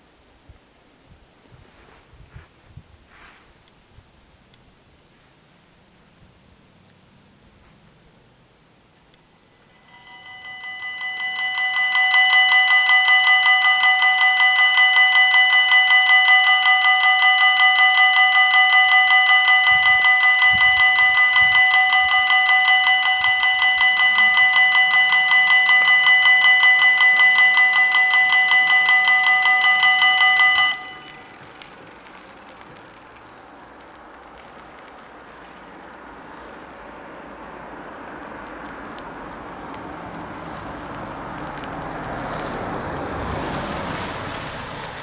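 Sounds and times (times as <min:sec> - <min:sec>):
level crossing bells ringing: 0:09.4 - 0:33.2.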